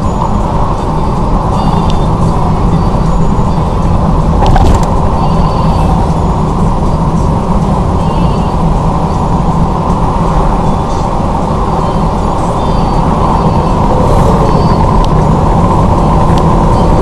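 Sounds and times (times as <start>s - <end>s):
car road and engine drone: 0.0s - 17.0s.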